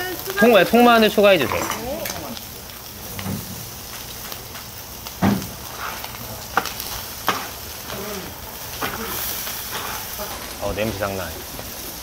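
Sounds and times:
food sizzling on a griddle: 0.0 - 12.0
metal utensils clacking on griddle: 0.4 - 2.4, 5.3 - 10.5.

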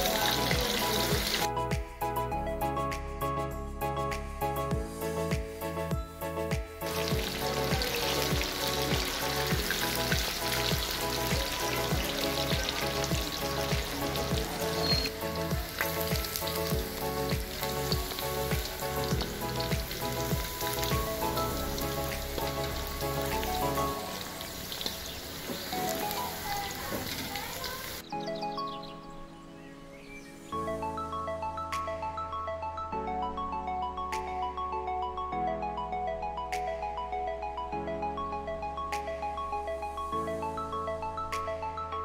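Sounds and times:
chicken deep-frying in oil: 0.0 - 1.5, 6.9 - 28.1
background music with beat: 0.0 - 27.0, 30.4 - 42.0.

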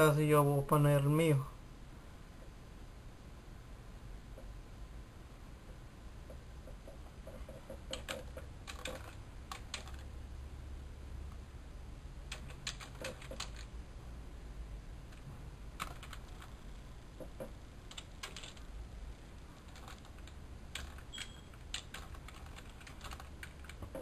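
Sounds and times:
steady low hum: 0.0 - 24.0
computer keyboard typing: 6.3 - 10.2, 12.3 - 13.8, 15.1 - 18.7, 19.4 - 24.0.

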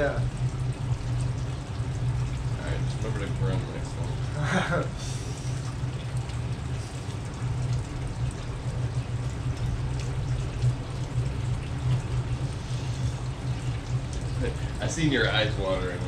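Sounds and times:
aquarium pump hum: 0.0 - 16.0
water trickling and splashing: 0.0 - 16.0.

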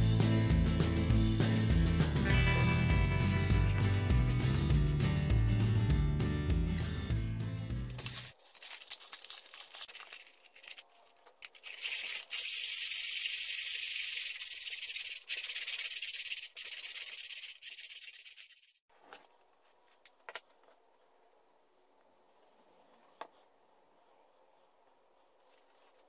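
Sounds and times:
sandpaper rubbing on wood: 11.8 - 18.8.

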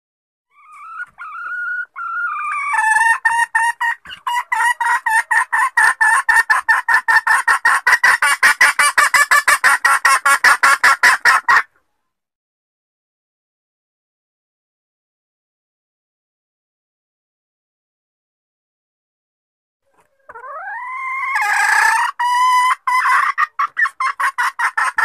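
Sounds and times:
junglefowl hen squawking and clucking: 0.5 - 12.0, 19.8 - 25.0.

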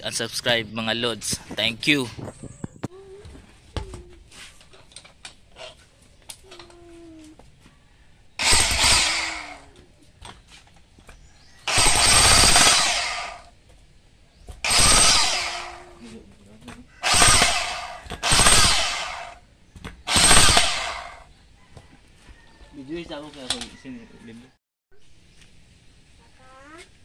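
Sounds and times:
jackhammer chiselling concrete: 8.4 - 9.6, 11.7 - 13.5, 14.6 - 16.0, 17.0 - 19.4, 20.1 - 21.2.

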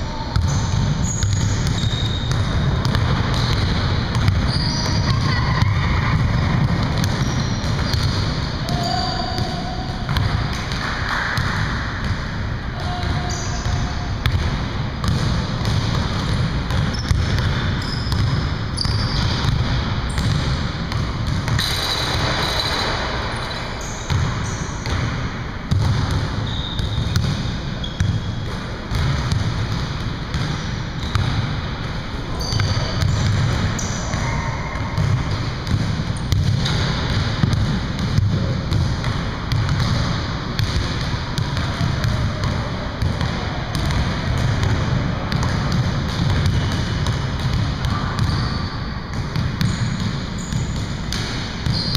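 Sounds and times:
basketballs bouncing on hardwood floor: 0.3 - 51.9
shoe squeaks: 0.4 - 2.4, 4.4 - 6.5, 7.1 - 9.8, 16.9 - 17.2, 17.8 - 19.4, 21.6 - 24.8, 26.4 - 27.2, 32.3 - 33.2, 33.8 - 34.5, 48.3 - 48.8.

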